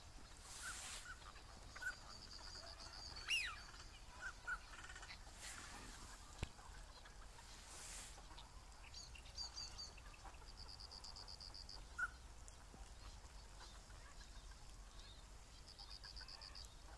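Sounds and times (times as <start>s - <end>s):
high bird chirps: 0.6s - 5.2s.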